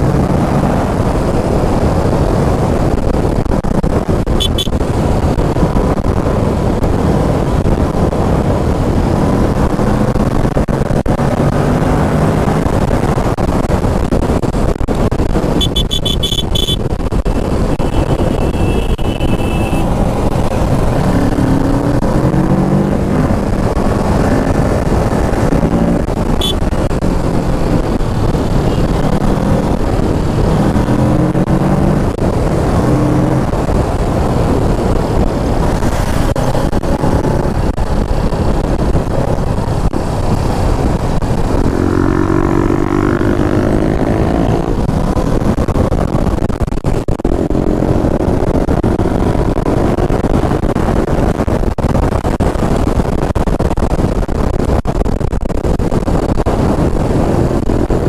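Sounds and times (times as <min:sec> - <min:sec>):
wind rush: 0:00.0 - 0:58.0
motorcycle engine running: 0:12.7 - 0:50.6
high-pitched beeps: 0:15.6 - 0:16.8.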